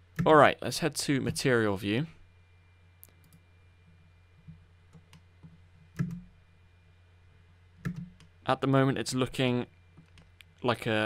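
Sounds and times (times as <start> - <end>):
faint steady low hum: 0.0 - 11.0
computer mouse clicks: 4.5 - 6.3, 7.8 - 8.3.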